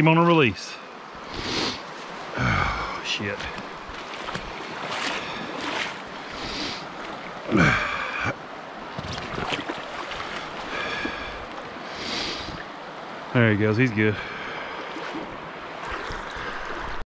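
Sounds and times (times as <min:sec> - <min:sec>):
creek water rushing: 0:00.0 - 0:17.0
splashes or knocks: 0:03.4 - 0:06.0, 0:08.9 - 0:11.4, 0:14.9 - 0:16.3.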